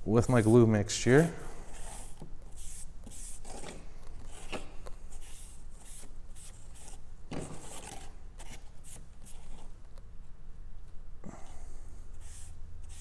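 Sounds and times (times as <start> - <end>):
paintbrush strokes on cardboard: 1.6 - 3.7, 12.1 - 13.0.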